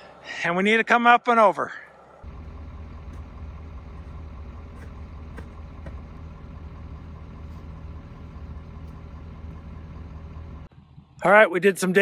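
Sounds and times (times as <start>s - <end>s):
vehicle engine idling: 2.1s - 11.3s.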